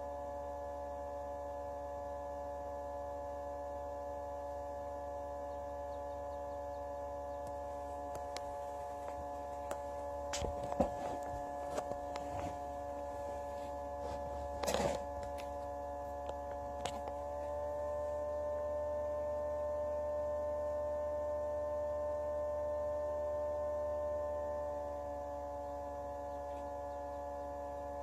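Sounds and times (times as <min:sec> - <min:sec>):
fan motor humming: 0:00.0 - 0:28.0.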